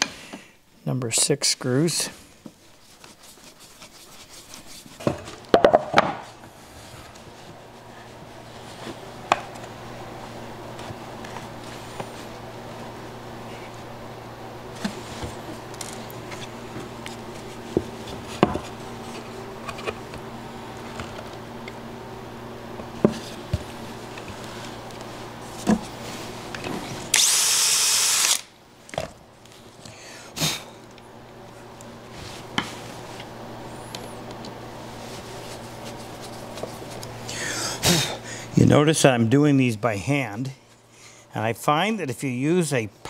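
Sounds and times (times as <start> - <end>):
steady low hum: 0.0 - 43.0
power drill drilling: 27.1 - 28.5.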